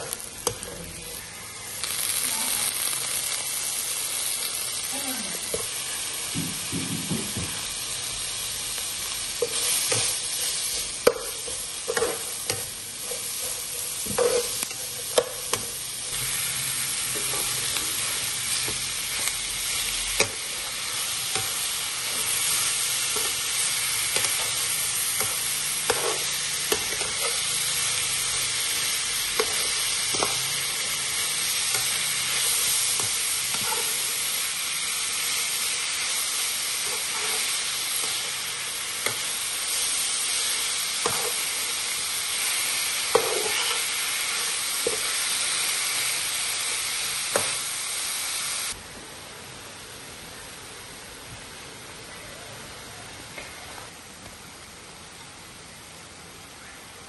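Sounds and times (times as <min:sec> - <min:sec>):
meat sizzling in oil: 0:00.0 - 0:52.1
metal spatula scraping a pan: 0:29.4 - 0:34.2, 0:36.8 - 0:38.4, 0:43.1 - 0:45.2.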